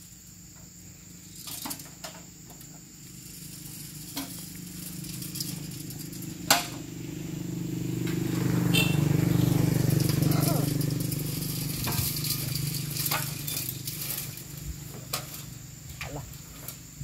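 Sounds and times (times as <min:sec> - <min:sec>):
low engine hum: 0:02.8 - 0:16.0.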